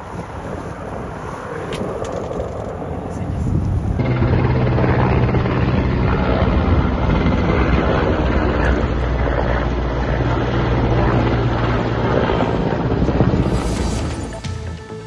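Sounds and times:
helicopter flying overhead: 0.0s - 15.0s.

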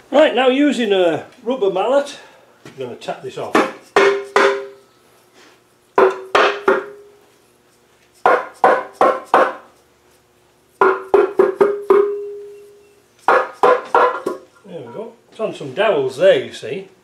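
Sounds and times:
rubber mallet knocking on metal: 3.6s - 4.8s, 6.0s - 7.0s, 8.2s - 9.6s, 10.8s - 12.4s, 13.3s - 14.5s.

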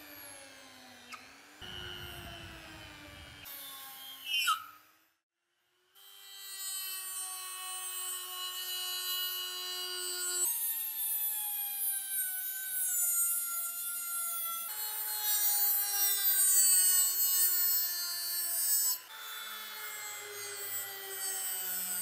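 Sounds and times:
rotary tool motor whine: 0.0s - 5.0s.

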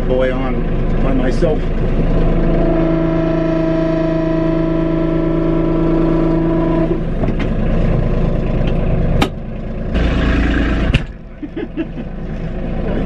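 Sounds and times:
louder engine rumbling: 0.0s - 13.0s
tractor diesel engine hum: 0.0s - 13.0s.

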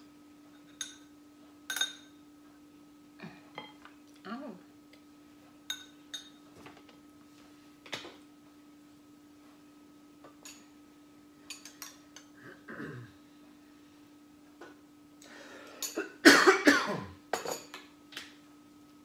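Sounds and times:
cutlery and dishes clinking: 11.5s - 12.3s, 17.4s - 17.9s.

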